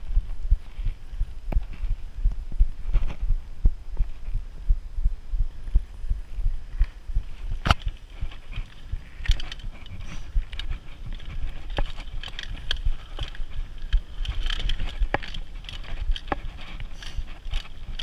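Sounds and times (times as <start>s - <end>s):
bike tyres rumbling on dirt: 5.4s - 18.0s
bike rattling over bumps: 6.6s - 18.0s.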